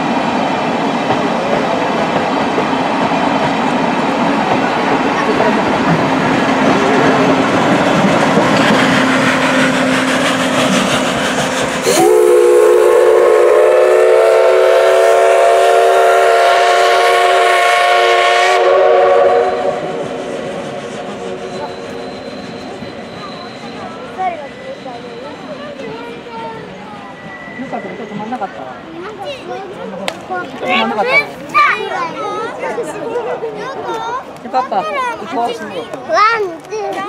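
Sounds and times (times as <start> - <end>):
train wheels clacking on rail joints: 1.0 - 12.1
steam whistle blast: 11.8 - 23.8.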